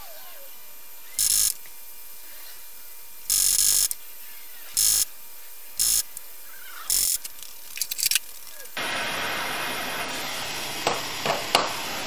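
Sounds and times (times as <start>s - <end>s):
propane torches hissing: 0.0s - 12.0s
short bursts of rough noise: 1.2s - 4.0s, 4.7s - 6.2s.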